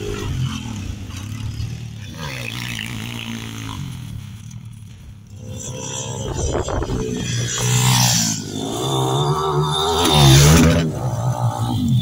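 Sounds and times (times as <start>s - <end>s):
pitbike engine revving: 0.0s - 12.0s.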